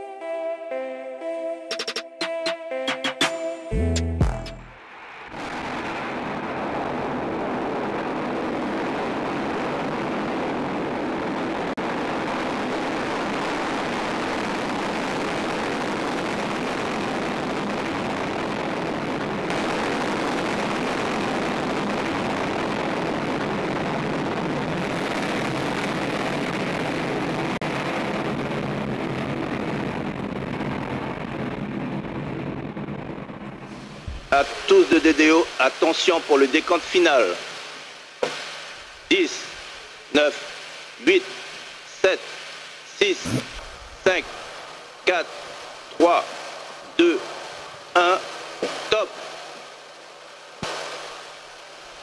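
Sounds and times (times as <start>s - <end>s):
rocket engines roaring: 4.6s - 21.0s, 24.6s - 37.4s, 42.9s - 46.1s.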